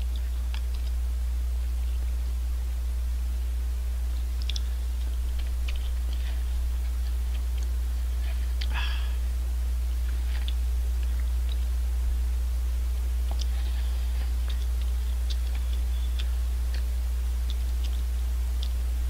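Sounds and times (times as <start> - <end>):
chewing: 0.0 - 1.0, 4.1 - 9.3, 10.0 - 11.8, 13.0 - 18.9
low electrical hum: 0.0 - 19.0.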